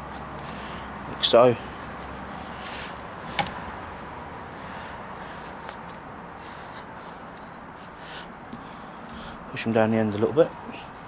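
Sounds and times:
faint handling noises: 0.0s - 4.4s, 5.2s - 11.0s.

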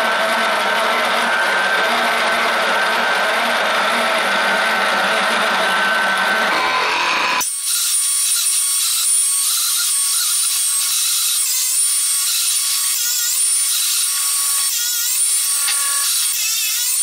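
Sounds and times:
thicknesser planing wood: 0.0s - 7.4s
machine high whine: 0.0s - 17.0s.

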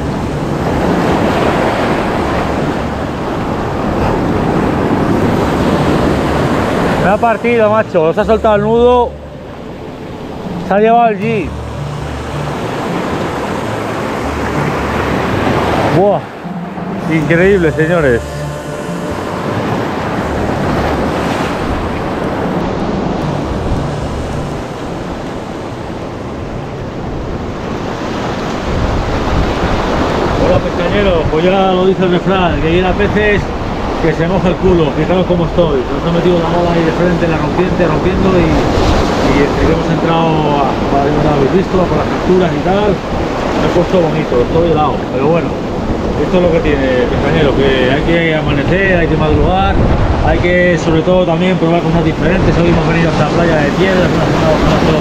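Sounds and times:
sea surf washing on shore: 0.0s - 55.0s
wind buffeting microphone: 18.8s - 36.1s, 37.4s - 55.0s.

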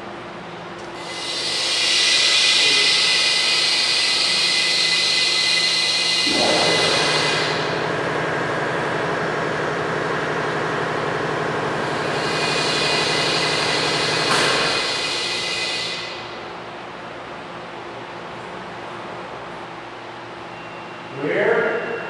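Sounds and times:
machine hiss over low hum: 1.1s - 8.2s.

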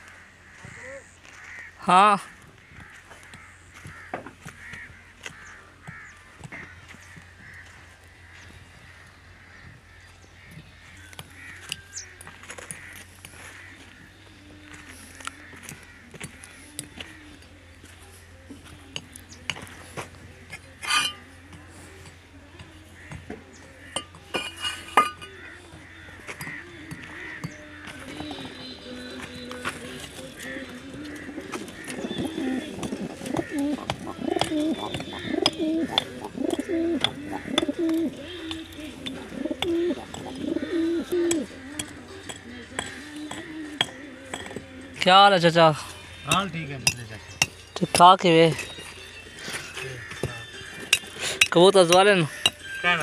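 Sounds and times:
pigeons cooing: 8.8s - 52.8s
bricks clinking together: 20.8s - 21.2s, 24.0s - 25.4s, 33.6s - 44.6s.

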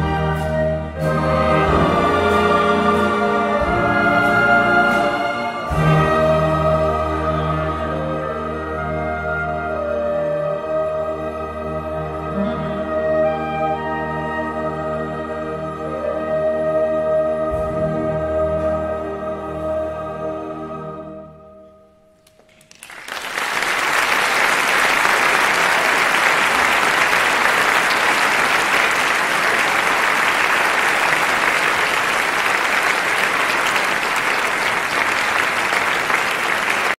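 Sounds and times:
audience applauding: 22.3s - 37.0s.

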